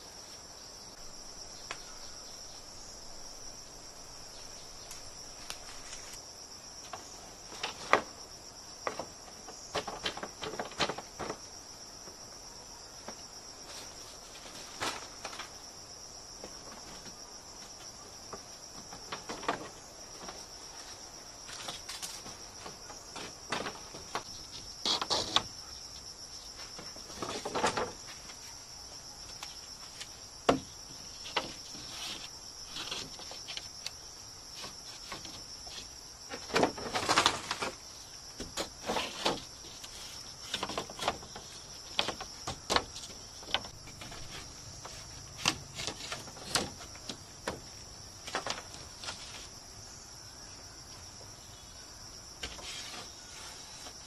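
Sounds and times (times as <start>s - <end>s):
insects chorus: 0.0s - 54.0s
bamboo knocking and clattering: 6.8s - 12.2s, 13.0s - 15.7s, 16.3s - 28.5s, 29.2s - 49.6s, 52.4s - 54.0s.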